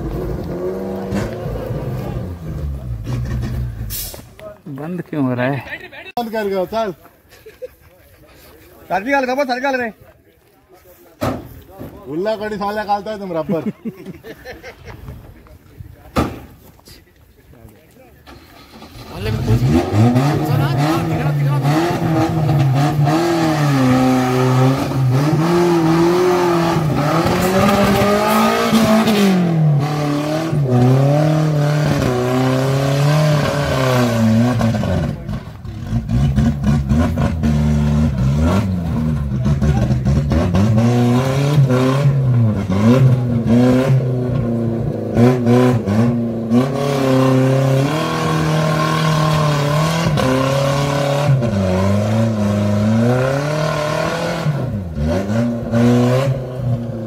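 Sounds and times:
engine revving under load: 0.0s - 4.2s, 18.3s - 57.0s.

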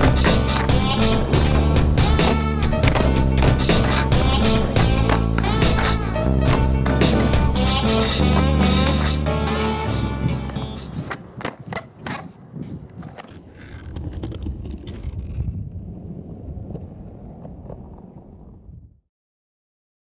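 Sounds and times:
skateboard clacking on asphalt: 0.0s - 9.3s, 9.9s - 15.4s
wind rumble on microphone: 10.2s - 19.0s.

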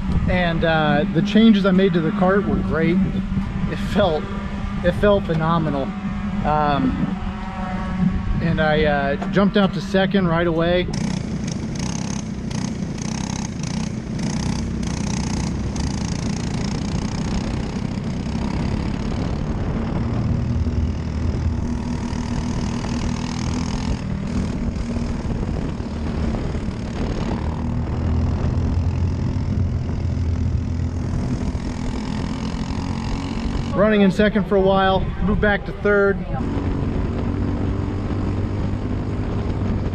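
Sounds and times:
kart engine running under load: 0.0s - 39.9s.

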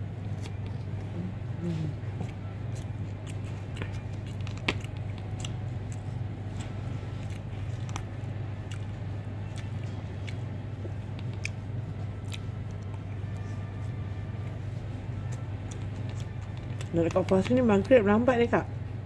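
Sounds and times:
steady low hum: 0.0s - 19.0s
chewing: 1.6s - 14.0s, 15.1s - 17.9s.

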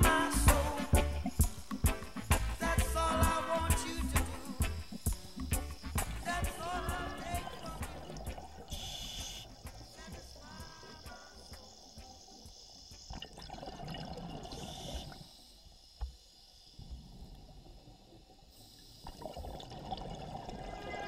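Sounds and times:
underwater air bubbling: 7.2s - 9.6s.

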